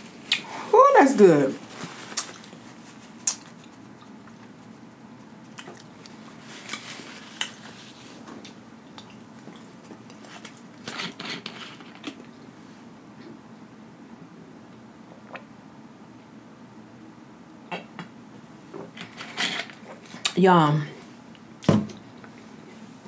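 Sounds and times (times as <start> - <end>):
wet mouth clicks: 3.2 - 4.1
chewing and lip-smacking: 3.2 - 4.7, 5.5 - 6.2.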